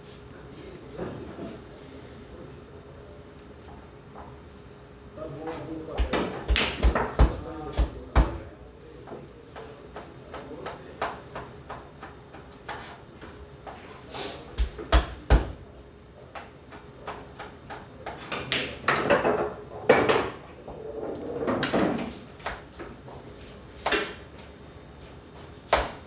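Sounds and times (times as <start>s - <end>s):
pool balls knocking: 6.0s - 8.4s, 17.1s - 20.5s.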